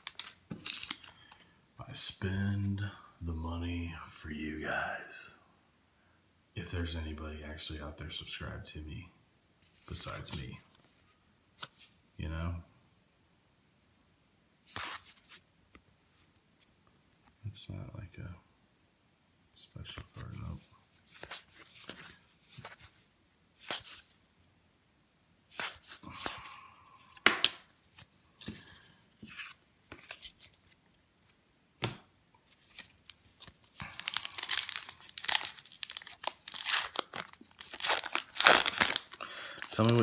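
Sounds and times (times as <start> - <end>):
wrapper torn open crinkling: 0.0 - 1.1, 32.5 - 40.0
card snaps: 27.2 - 27.7.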